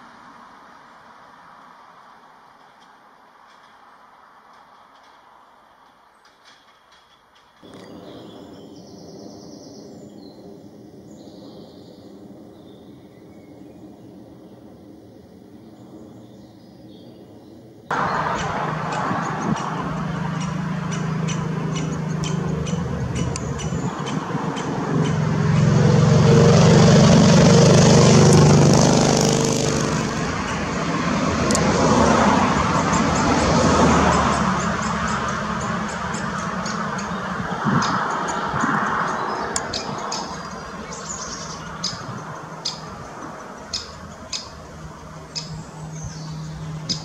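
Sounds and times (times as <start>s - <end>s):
passing motor traffic: 0.0s - 47.0s
sharp bird calls: 15.7s - 25.8s, 32.8s - 47.0s.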